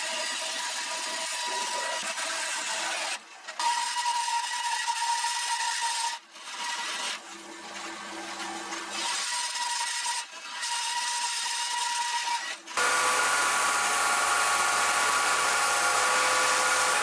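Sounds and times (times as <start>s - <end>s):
band saw cutting wood: 0.0s - 7.2s, 8.7s - 17.0s.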